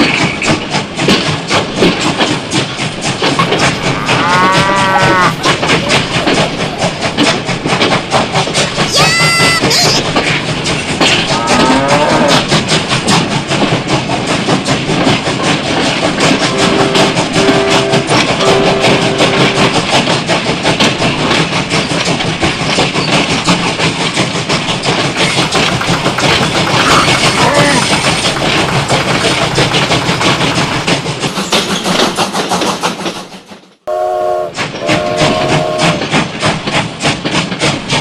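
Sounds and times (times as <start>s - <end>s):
toy train clattering on track: 0.0s - 33.7s, 34.6s - 38.0s
toy train toots: 8.8s - 10.3s, 16.4s - 20.0s, 25.2s - 30.8s, 33.9s - 36.1s.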